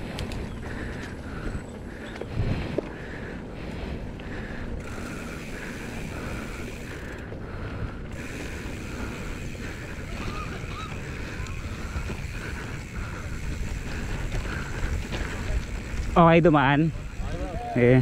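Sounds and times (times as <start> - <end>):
wind on microphone: 0.0 - 4.2
bike tyres rumbling on rough ground: 0.0 - 18.0.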